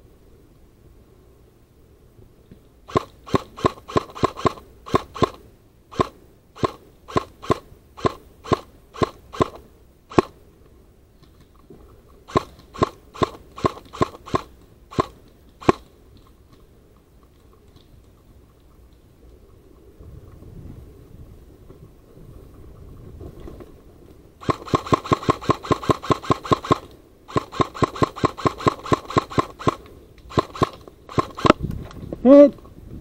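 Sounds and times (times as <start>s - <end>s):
airsoft gun firing single shots: 2.9s - 10.4s, 12.3s - 15.9s, 24.4s - 31.6s.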